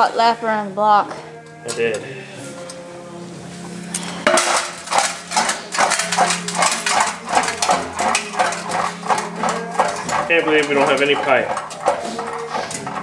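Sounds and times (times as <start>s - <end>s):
metallic clinking and rattling: 3.9s - 13.0s.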